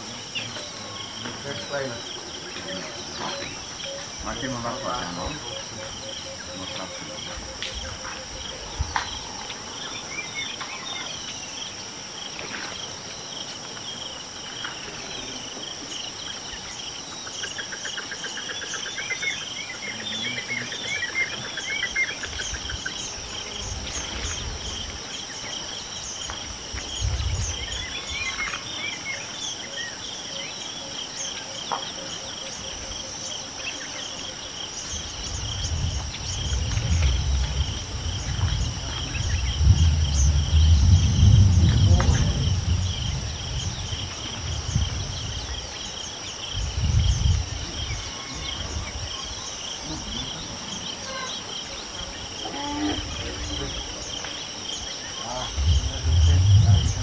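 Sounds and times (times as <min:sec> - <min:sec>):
bird calls: 0:00.0 - 0:11.8, 0:12.4 - 0:42.4
insects buzzing and chirping: 0:00.0 - 0:57.0
low rumble: 0:35.4 - 0:45.4, 0:55.4 - 0:57.0.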